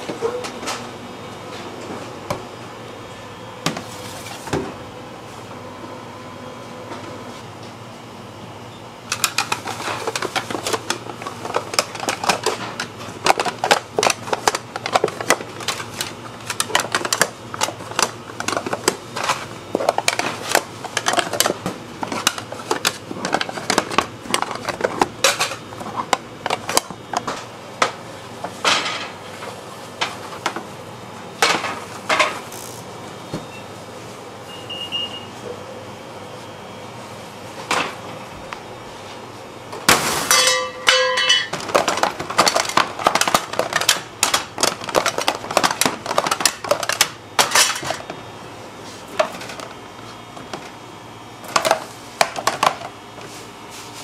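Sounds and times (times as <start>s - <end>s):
metal lids clattering on tins: 40.3s - 48.0s.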